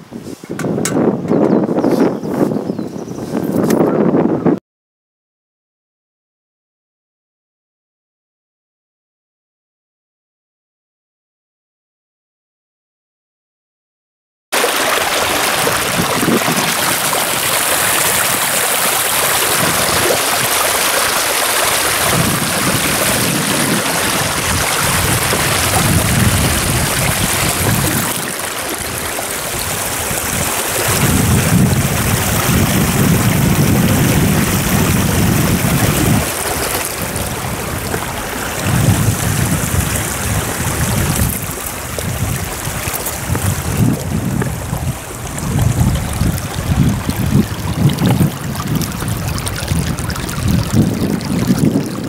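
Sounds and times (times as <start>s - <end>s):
wind buffeting microphone: 0.0s - 4.6s, 15.0s - 52.0s
river flowing over stones: 14.6s - 52.0s.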